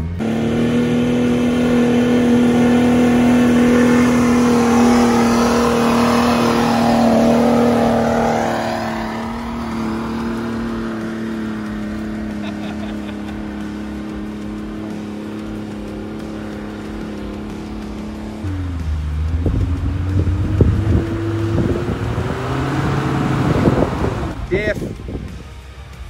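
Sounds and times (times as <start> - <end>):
vehicle engine revving high: 0.0 - 25.0.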